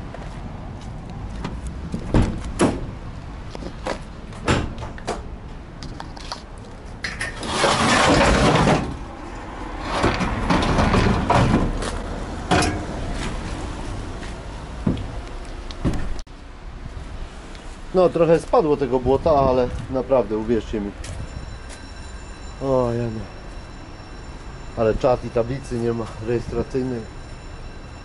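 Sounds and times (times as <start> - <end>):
doors scraping and rattling: 7.0 - 13.6.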